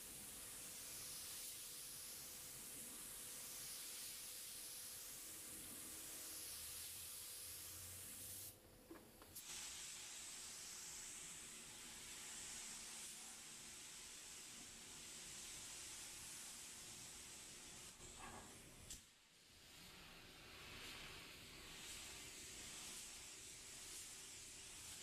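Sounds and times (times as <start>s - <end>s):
paint spray gun hissing: 0.0s - 8.6s.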